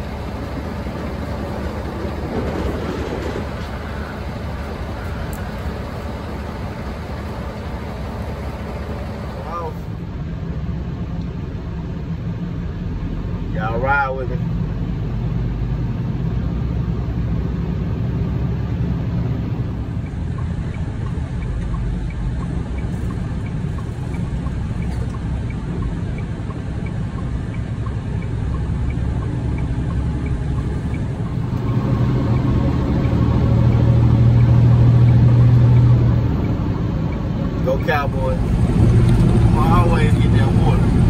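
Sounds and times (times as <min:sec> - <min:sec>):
truck engine and road rumble: 0:00.0 - 0:41.0
faint regular ticking: 0:19.8 - 0:38.2.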